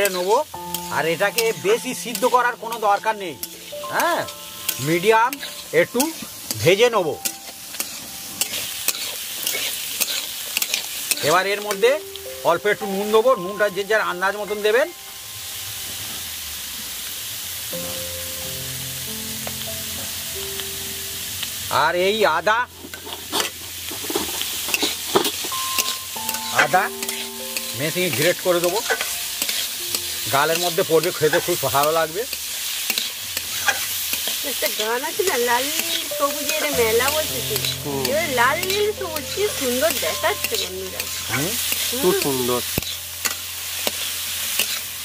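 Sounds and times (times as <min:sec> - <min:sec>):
vegetables sizzling in oil: 0:00.0 - 0:45.0
spatula scraping a pan: 0:04.8 - 0:06.3, 0:07.8 - 0:11.3, 0:22.8 - 0:27.3, 0:28.7 - 0:34.8, 0:38.6 - 0:44.9.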